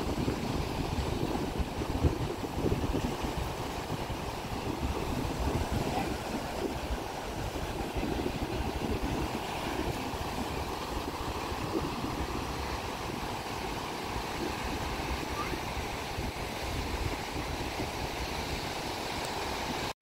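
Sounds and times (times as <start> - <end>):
wind rumble on microphone: 0.0 - 19.9
sea surf breaking on beach: 0.0 - 20.0.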